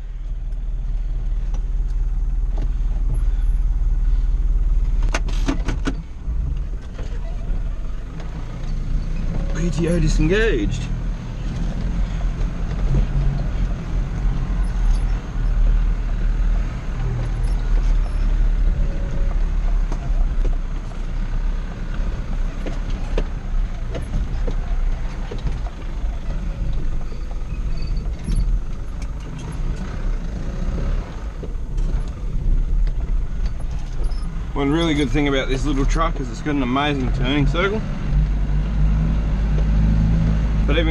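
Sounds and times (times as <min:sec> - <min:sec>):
truck engine running: 0:00.0 - 0:38.4
knocks and rattles from cab: 0:04.7 - 0:10.2, 0:21.9 - 0:29.9.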